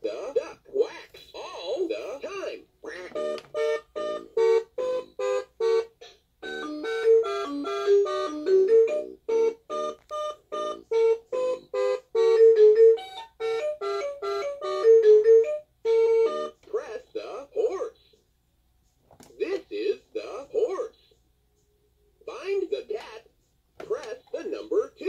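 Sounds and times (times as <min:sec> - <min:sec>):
toy beeping tune: 0:03.0 - 0:16.6.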